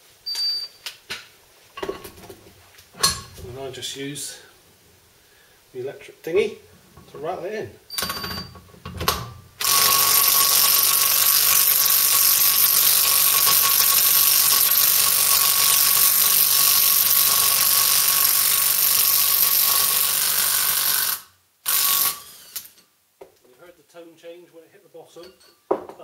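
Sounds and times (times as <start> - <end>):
impact wrench hammering: 8.0 - 22.2.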